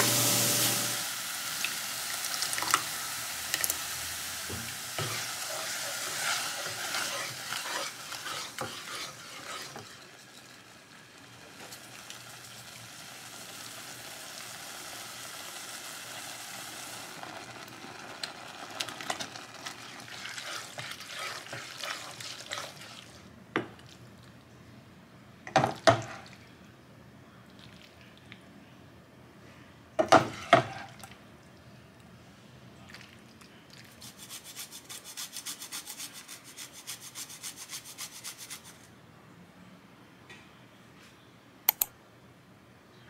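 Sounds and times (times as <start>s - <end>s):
sauce sizzling and bubbling: 0.0s - 24.0s
spatula scraping saucepan: 5.0s - 10.7s, 20.1s - 23.1s, 30.2s - 30.9s.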